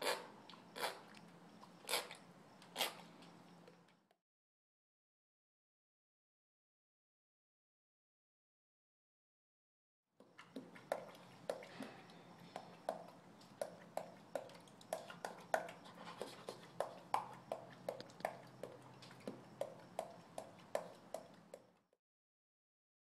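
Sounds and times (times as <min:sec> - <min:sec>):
chimpanzee clacking teeth: 0:00.0 - 0:03.0, 0:10.3 - 0:21.7.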